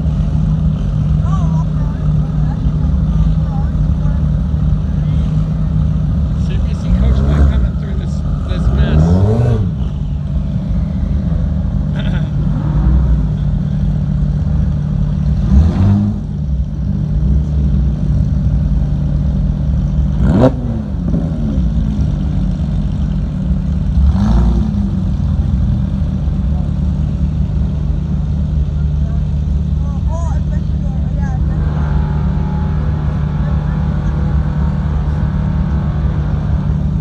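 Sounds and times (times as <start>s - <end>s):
sports car engines idling: 0.0s - 37.0s
engine revving sharply: 6.7s - 9.9s, 15.4s - 16.3s.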